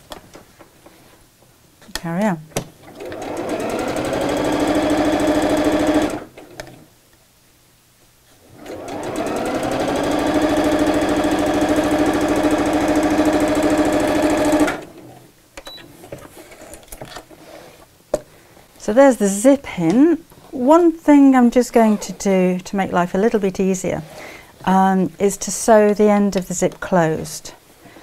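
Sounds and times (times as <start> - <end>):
sewing machine stitching: 2.8 - 6.4, 8.5 - 15.2.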